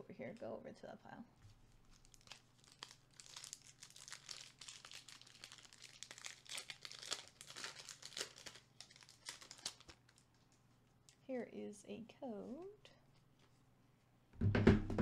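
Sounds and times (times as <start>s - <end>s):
foil wrapper crinkling: 1.5s - 10.5s.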